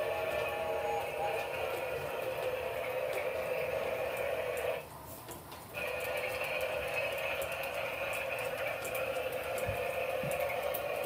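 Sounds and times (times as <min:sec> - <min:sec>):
toy train motor whine: 0:00.0 - 0:04.8, 0:05.8 - 0:11.0.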